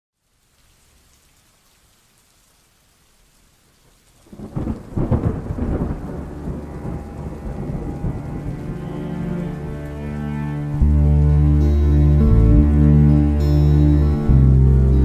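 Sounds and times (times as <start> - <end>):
soft steady rain: 0.1 - 15.0
thunder rumbling: 4.2 - 12.8.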